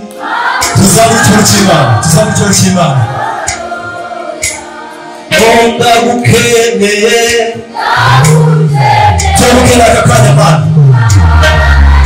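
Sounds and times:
group of singers: 0.0s - 12.0s
man singing into a microphone: 0.7s - 3.2s, 5.3s - 7.7s, 9.3s - 11.6s.

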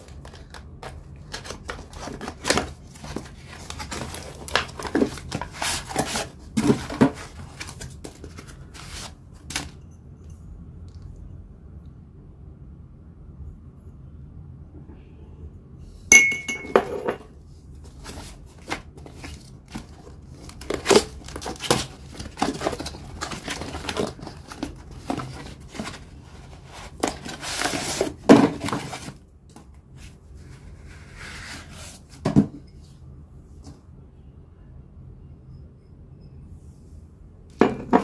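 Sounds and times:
cardboard packaging rustling: 0.0s - 9.8s, 17.8s - 29.2s
ceramic bowls clinking: 16.1s - 17.3s.

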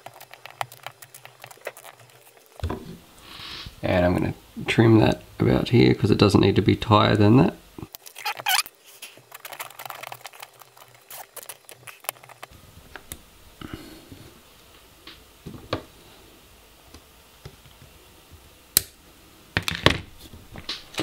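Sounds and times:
hands handling small objects: 7.9s - 12.5s.

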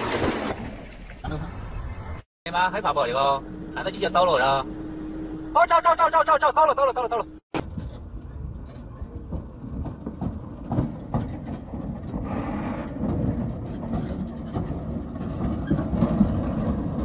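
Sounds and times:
truck engine rumble: 0.6s - 17.0s
trailer knocks and rattles: 7.6s - 17.0s.

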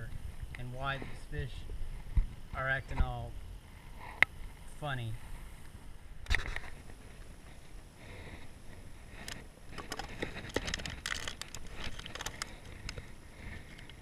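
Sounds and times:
clicks and crinkles: 9.1s - 14.0s.

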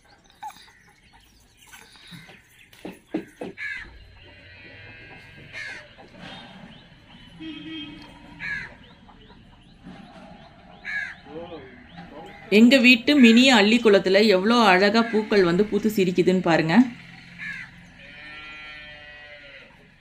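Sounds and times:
crows cawing: 2.0s - 6.2s, 8.1s - 9.1s, 10.7s - 12.7s, 14.9s - 15.7s, 17.2s - 19.9s.

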